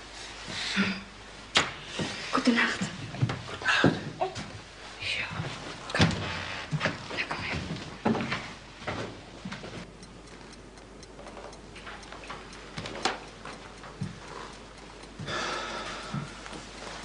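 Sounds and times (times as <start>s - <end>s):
clock ticking: 9.8s - 17.0s.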